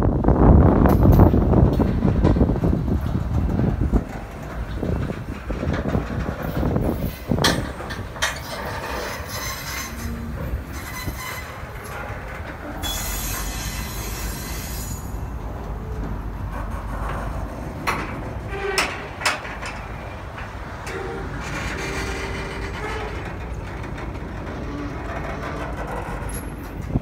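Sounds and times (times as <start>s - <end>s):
train wheels rumbling: 0.0s - 27.0s
train wheels squealing: 8.4s - 12.0s, 12.7s - 15.3s.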